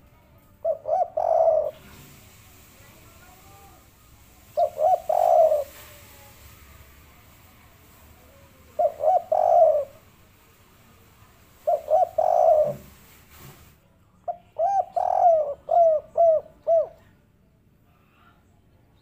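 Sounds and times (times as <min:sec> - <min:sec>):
dove cooing: 0:00.6 - 0:02.2, 0:04.4 - 0:06.1, 0:08.6 - 0:10.0, 0:11.6 - 0:13.1, 0:14.5 - 0:17.1.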